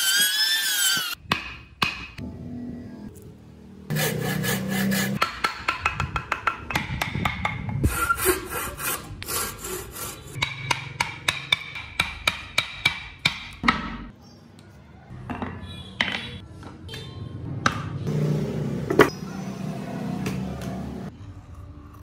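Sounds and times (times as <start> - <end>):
hand saw cutting wood: 3.9 - 5.2, 7.8 - 10.4.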